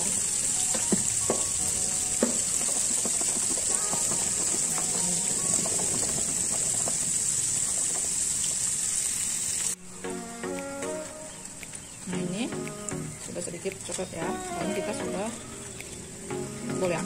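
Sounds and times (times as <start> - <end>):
food deep-frying in oil: 0.0 - 9.8.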